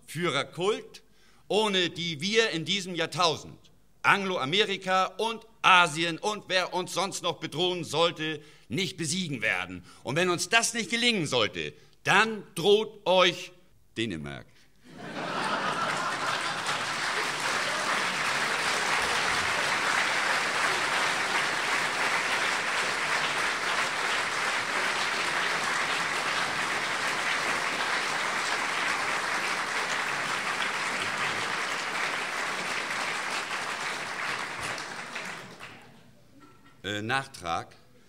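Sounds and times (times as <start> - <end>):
audience applauding: 15.0 - 35.9.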